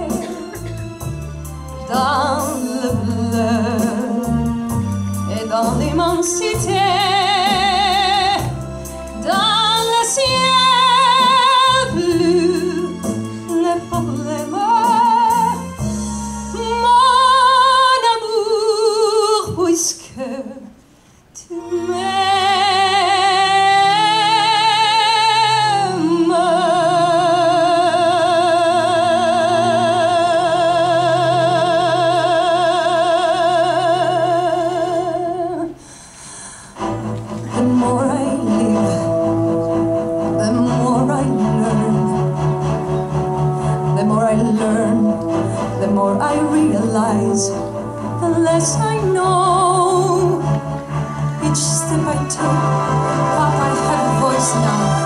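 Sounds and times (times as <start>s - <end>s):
instrumental accompaniment: 0.0s - 18.7s, 36.6s - 55.0s
female opera singer with vibrato: 5.3s - 8.6s, 9.2s - 15.6s, 16.5s - 20.8s, 21.4s - 35.8s, 37.6s - 39.3s, 40.3s - 42.4s, 43.8s - 50.6s, 51.3s - 55.0s.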